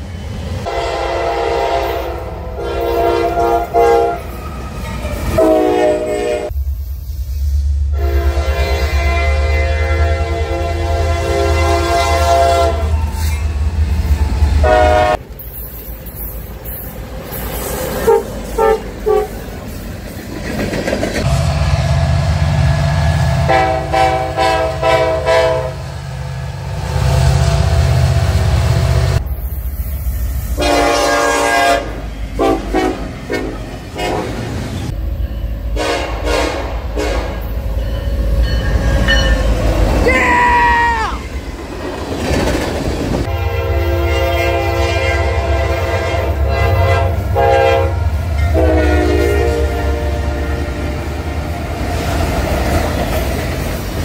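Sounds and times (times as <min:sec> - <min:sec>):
diesel locomotive engine rumble: 0:00.0 - 0:54.0
train air horn blasts: 0:00.6 - 0:04.4, 0:05.3 - 0:06.6, 0:07.9 - 0:13.4, 0:14.6 - 0:15.2, 0:18.0 - 0:19.4, 0:21.2 - 0:26.0, 0:30.6 - 0:34.5, 0:35.7 - 0:37.6, 0:43.2 - 0:51.2
wheels clattering on rails: 0:15.2 - 0:21.3, 0:41.4 - 0:43.3.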